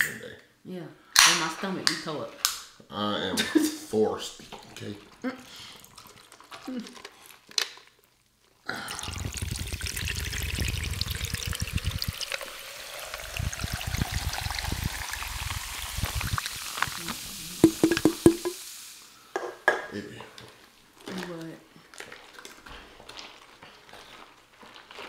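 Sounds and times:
soda fizzing and crackling: 8.0s - 19.3s
soda pouring over ice: 8.7s - 19.1s
glass knocks and rubs: 17.6s - 18.6s.

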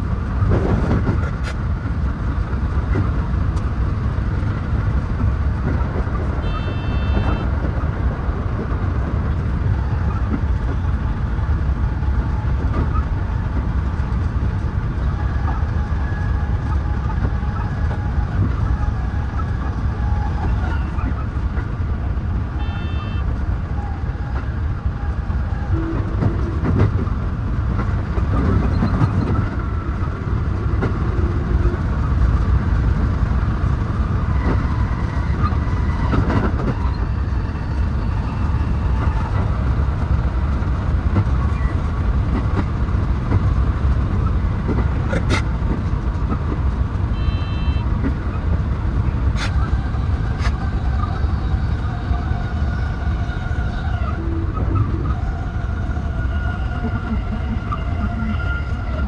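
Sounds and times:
train wheels rumbling on rail: 0.0s - 59.0s
short high beeps: 47.2s - 47.8s.

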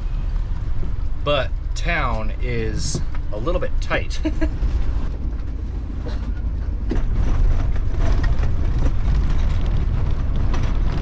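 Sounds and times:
engine and road rumble: 0.0s - 11.0s
rattles and knocks: 4.7s - 11.0s.

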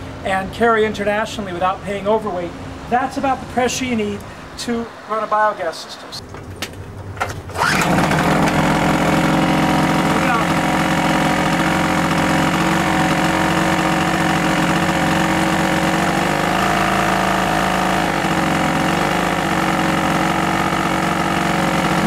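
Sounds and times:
two-stroke generator engine running: 7.1s - 22.0s.

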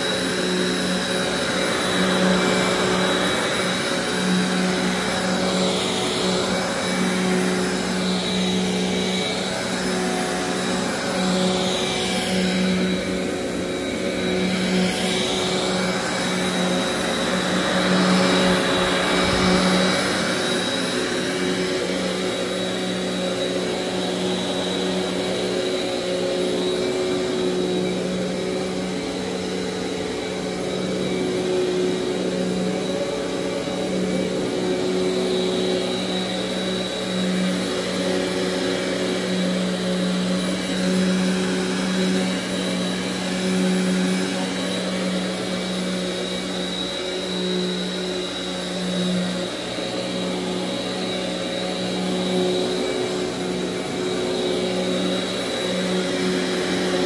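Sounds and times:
vacuum cleaner running on carpet: 0.0s - 57.0s.

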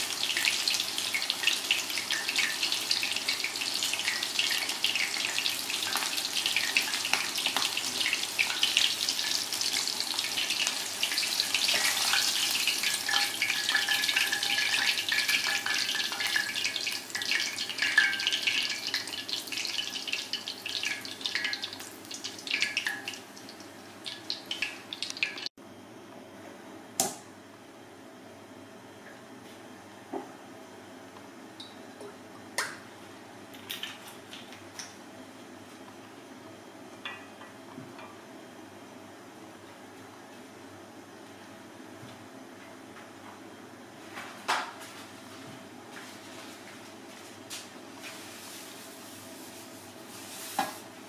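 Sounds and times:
chicken deep-frying in oil: 0.0s - 25.5s, 33.6s - 35.0s.

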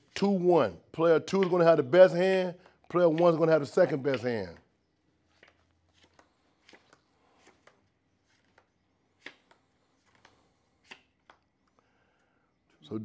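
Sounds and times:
playing cards dealt onto table: 2.6s - 4.5s, 5.2s - 11.8s.

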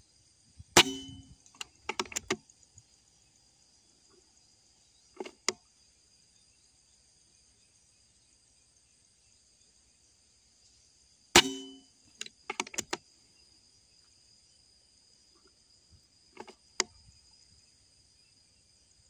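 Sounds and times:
high drone of insects: 0.0s - 19.0s
air rifle shot: 0.8s - 1.4s, 11.4s - 11.8s
clicks: 0.8s - 2.4s, 11.4s - 13.0s, 16.4s - 16.9s.

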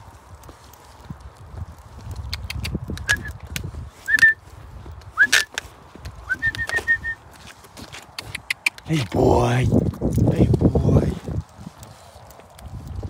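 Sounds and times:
footsteps on wet tarmac: 0.0s - 13.0s
short whistle-like notes: 3.0s - 3.4s, 4.0s - 4.4s, 5.2s - 5.5s, 6.3s - 7.2s.

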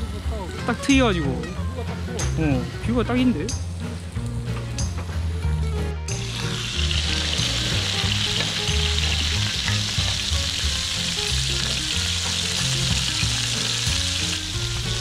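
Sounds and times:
pork sizzling on griddle: 6.1s - 15.0s.

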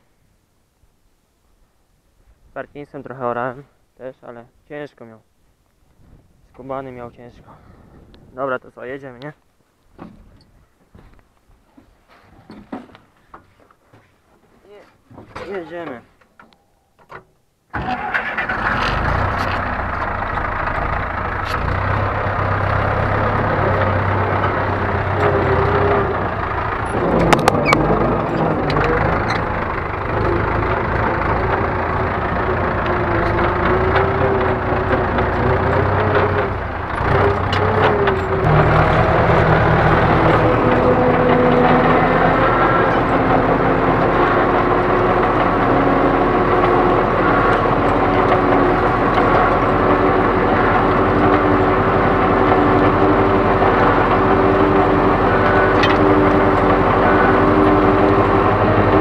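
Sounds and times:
engine starter: 17.7s - 21.9s, 26.4s - 43.2s
tractor diesel engine running: 17.7s - 59.0s.

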